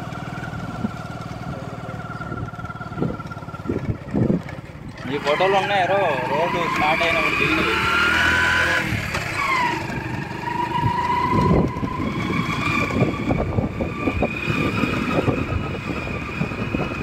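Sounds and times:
engine whine: 0:00.0 - 0:17.0
vehicle engine running: 0:00.0 - 0:17.0
wind buffeting microphone: 0:02.2 - 0:05.7, 0:07.6 - 0:17.0.

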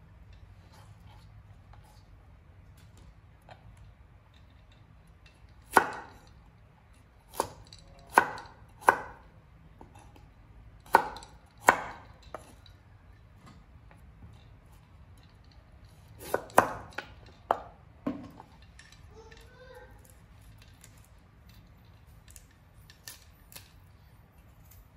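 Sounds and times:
cleaver chopping on wooden board: 0:05.7 - 0:06.2, 0:07.3 - 0:09.2, 0:10.8 - 0:12.4, 0:16.2 - 0:18.3.

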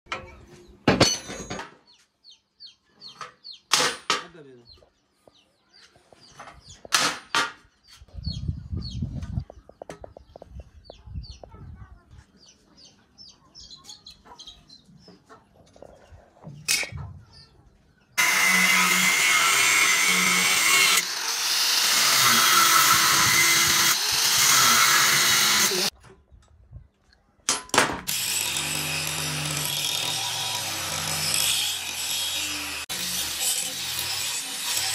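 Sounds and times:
angle grinder cutting steel: 0:18.2 - 0:25.9, 0:28.1 - 0:34.9.

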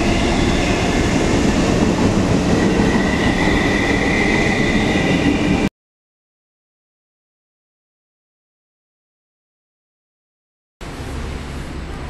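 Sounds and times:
high whine: 0:00.0 - 0:05.7
train rolling rumble: 0:00.0 - 0:05.7, 0:10.8 - 0:12.0.

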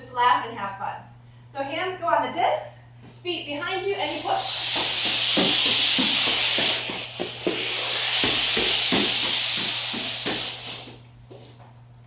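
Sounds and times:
feet thudding: 0:04.0 - 0:11.6.

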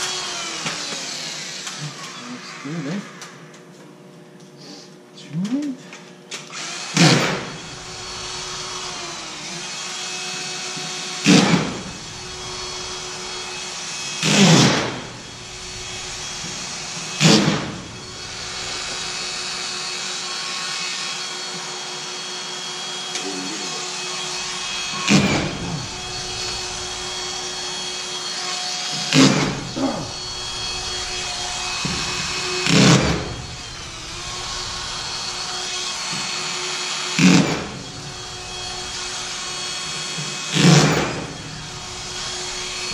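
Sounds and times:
steady mechanical hum: 0:00.0 - 0:20.9, 0:21.6 - 0:36.8
screw gun driving screws: 0:24.4 - 0:27.2, 0:31.8 - 0:33.3, 0:37.2 - 0:37.8, 0:39.0 - 0:41.2.

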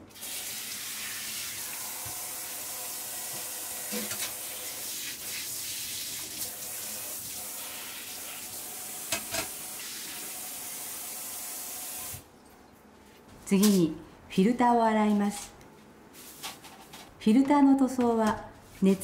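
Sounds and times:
water running into sink: 0:00.1 - 0:12.2.

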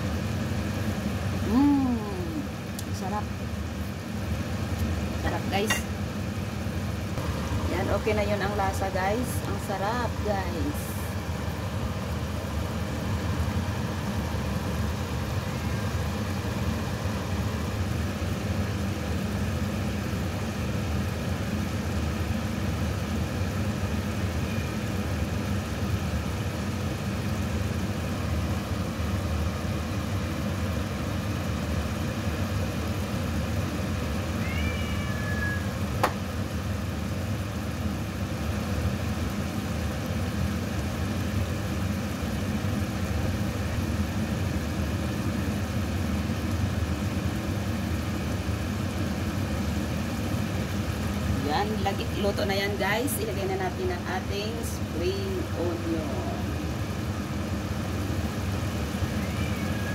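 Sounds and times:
low mechanical hum: 0:00.0 - 0:59.9.

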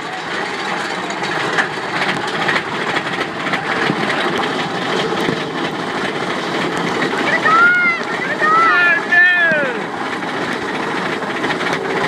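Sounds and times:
roller coaster wheels on rails: 0:00.0 - 0:12.0.

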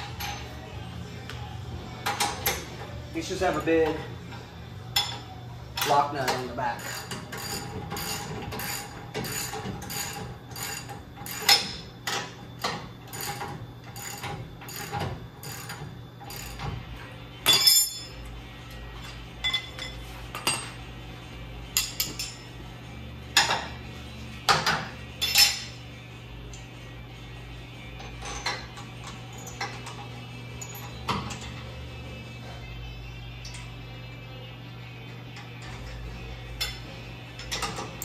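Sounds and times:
metal tools clinking: 0:17.4 - 0:18.2, 0:25.2 - 0:25.7, 0:28.0 - 0:31.6.

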